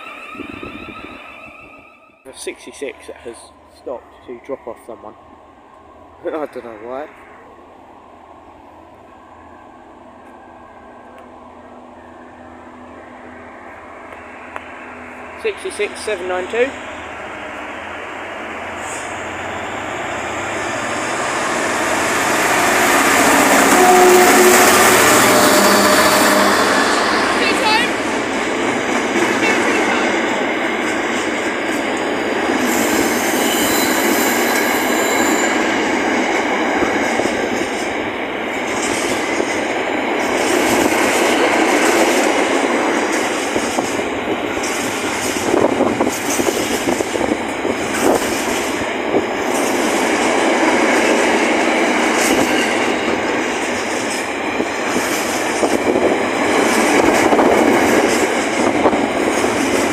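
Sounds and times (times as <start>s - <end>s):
high wheel squeal: 0.0s - 2.6s, 21.7s - 28.0s, 32.6s - 35.9s
train wheels clattering over joints: 28.0s - 59.9s.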